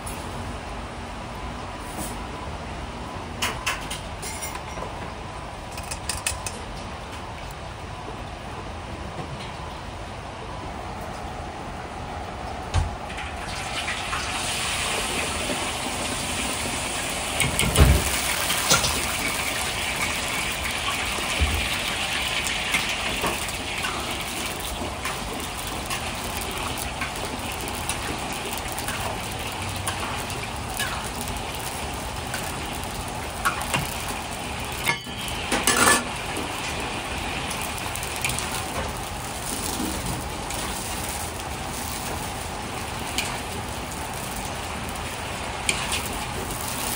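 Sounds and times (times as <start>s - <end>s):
wok burner rushing: 13.0s - 46.9s
peas sizzling in hot oil: 13.5s - 46.9s.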